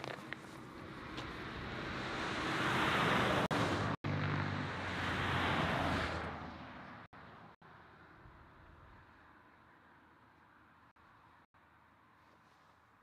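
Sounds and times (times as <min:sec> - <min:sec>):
vehicle driving past: 0:00.8 - 0:08.0.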